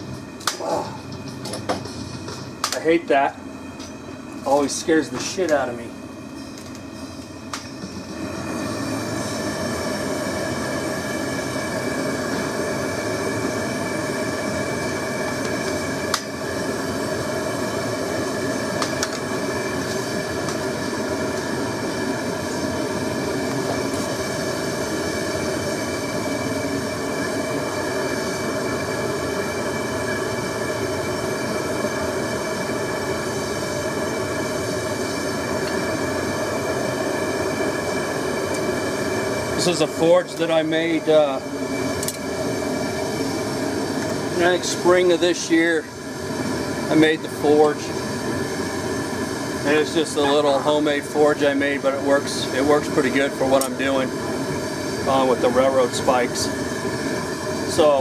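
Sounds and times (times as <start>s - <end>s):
gas burner hissing and whistling: 0.0s - 58.0s.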